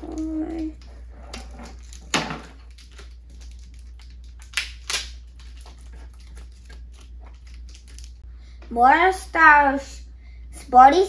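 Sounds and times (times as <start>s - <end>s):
plastic and card crackling: 0.0s - 8.2s
low steady hum: 0.0s - 11.0s
packaging sharp crack: 1.6s - 8.2s.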